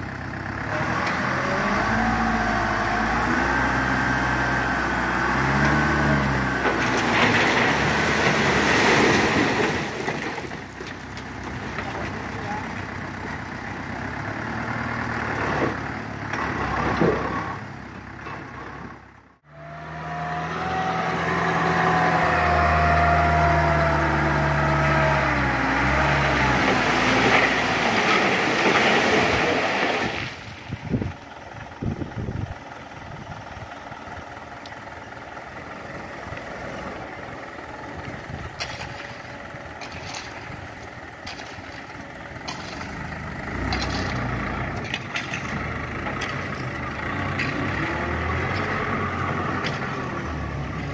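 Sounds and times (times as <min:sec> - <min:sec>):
diesel truck engine revving: 0:00.0 - 0:30.3, 0:30.9 - 0:50.9
rock and soil tipping out: 0:06.5 - 0:12.8, 0:26.6 - 0:31.1, 0:38.0 - 0:48.9.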